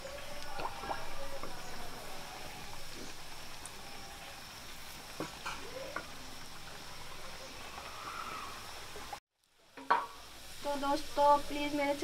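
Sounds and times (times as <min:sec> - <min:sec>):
frying in hot oil sizzling: 0:08.6 - 0:12.0.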